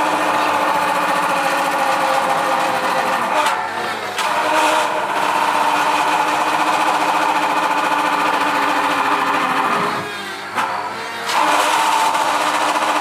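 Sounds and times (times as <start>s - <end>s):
drill bit boring into timber: 0.0s - 13.0s
drill press motor running: 0.0s - 13.0s.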